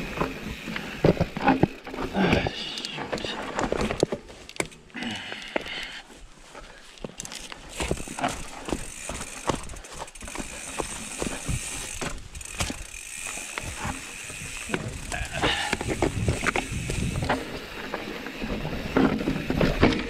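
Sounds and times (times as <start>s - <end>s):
bike knocks and rattles: 0.0s - 4.8s, 7.0s - 20.0s
tyre and trail noise rush: 0.0s - 20.0s.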